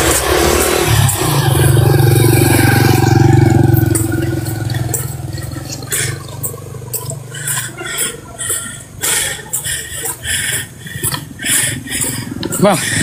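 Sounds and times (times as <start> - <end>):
motorbike engine pulling away: 0.0 - 7.5.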